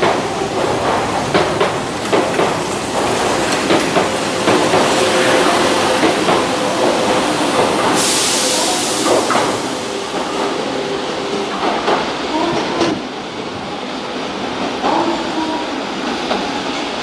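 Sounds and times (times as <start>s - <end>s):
train wheels clacking over rail joints: 0.0s - 10.5s
train running hum: 0.0s - 17.0s
sudden hiss: 4.2s - 11.8s.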